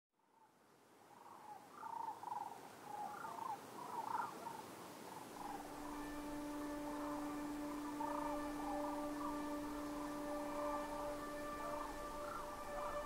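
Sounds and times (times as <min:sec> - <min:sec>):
steady forest hiss: 0:00.2 - 0:13.0
warbling animal calls: 0:01.3 - 0:13.0
low steady tone: 0:05.4 - 0:13.0.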